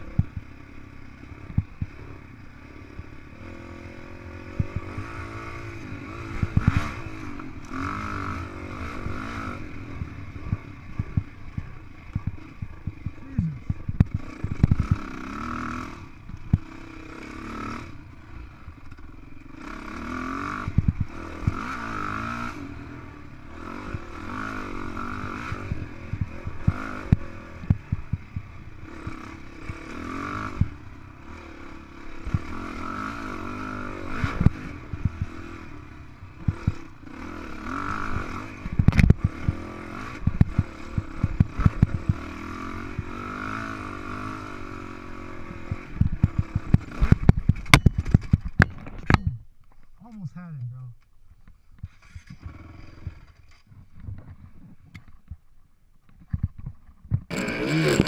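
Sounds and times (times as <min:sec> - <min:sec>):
dirt bike engine revving: 0:00.0 - 0:49.4, 0:51.9 - 0:53.6, 0:57.2 - 0:58.0
bike knocking and rattling: 0:10.0 - 0:15.1, 0:45.7 - 0:49.9, 0:51.4 - 0:58.0.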